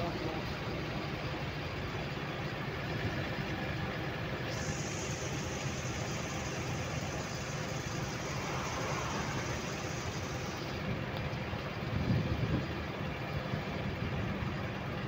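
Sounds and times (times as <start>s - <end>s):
vehicle engine and road noise: 0.0s - 15.0s
passing car rush: 6.0s - 11.8s.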